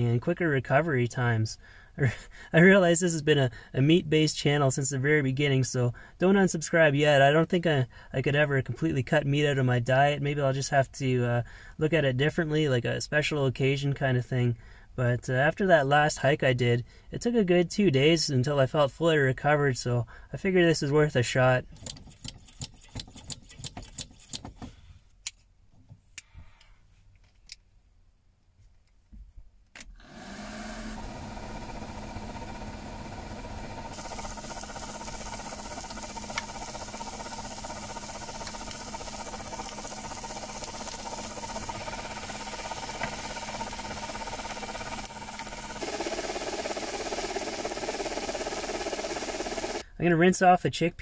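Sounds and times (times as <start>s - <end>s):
gas stove burner hissing: 31.3s - 49.8s.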